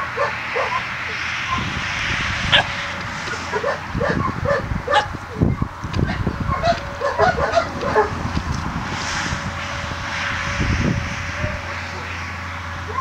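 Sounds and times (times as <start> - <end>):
dogs barking and yipping: 0.0 - 8.4, 12.8 - 13.0.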